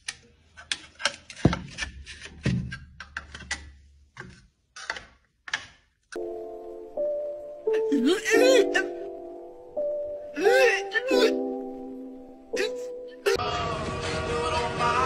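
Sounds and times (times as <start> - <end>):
steady musical tones: 6.2 - 13.6.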